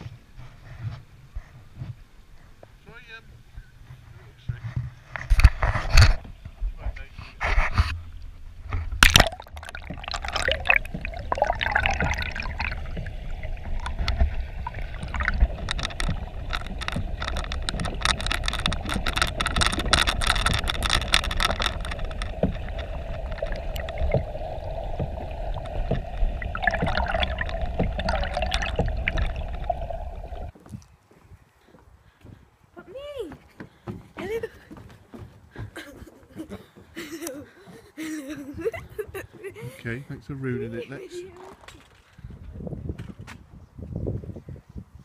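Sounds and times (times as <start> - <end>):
small underwater clicks and crackles: 7.0 - 30.6
camera splashing into water: 8.8 - 30.5
muffled underwater gurgling: 9.0 - 30.5.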